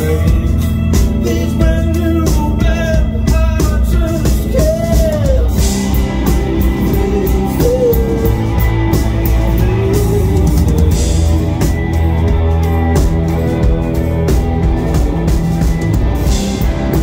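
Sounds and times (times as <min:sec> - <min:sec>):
drum kit: 0:00.0 - 0:17.0
electric guitar: 0:00.0 - 0:17.0.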